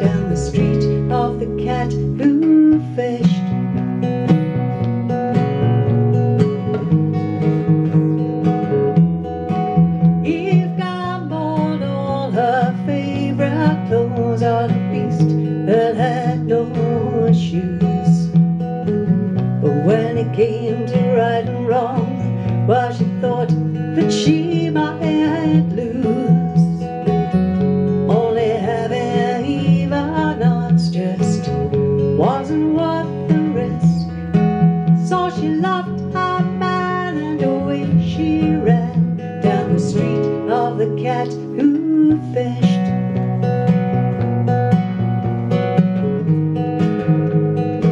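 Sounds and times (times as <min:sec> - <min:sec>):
woman singing: 0:00.0 - 0:04.0, 0:09.7 - 0:43.4
acoustic guitar strummed: 0:00.0 - 0:47.9
electric bass guitar line: 0:00.0 - 0:47.9.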